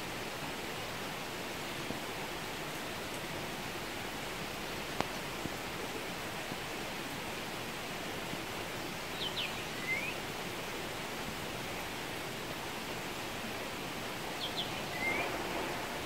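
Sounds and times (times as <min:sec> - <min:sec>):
steady rain falling: 0:00.0 - 0:16.0
bird singing: 0:09.2 - 0:10.2, 0:14.4 - 0:15.4.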